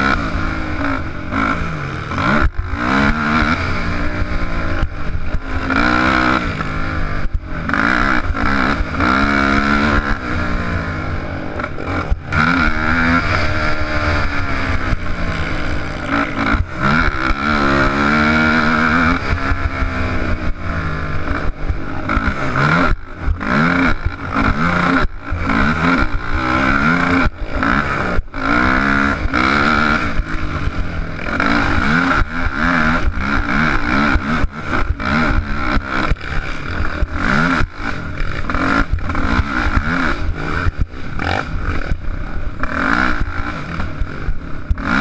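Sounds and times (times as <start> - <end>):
quad engine revving: 0.0 - 45.0.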